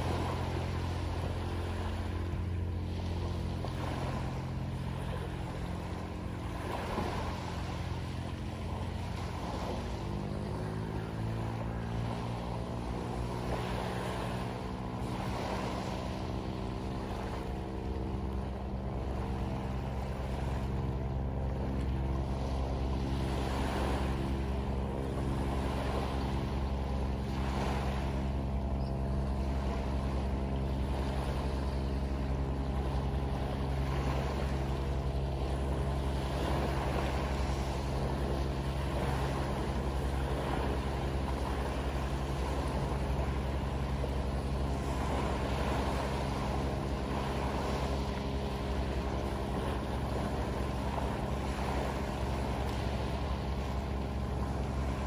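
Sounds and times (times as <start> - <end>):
waves washing onto pebbles: 0.0 - 2.0
boat engine droning: 0.0 - 55.0.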